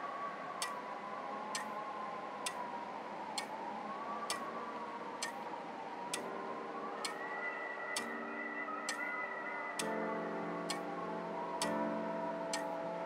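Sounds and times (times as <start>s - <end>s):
clock-like ticking: 0.6s - 0.9s, 1.5s - 1.8s, 2.4s - 2.7s, 3.3s - 3.6s, 4.3s - 4.6s, 5.2s - 6.4s, 7.0s - 7.3s, 8.0s - 8.2s, 8.9s - 9.1s, 9.8s - 12.8s.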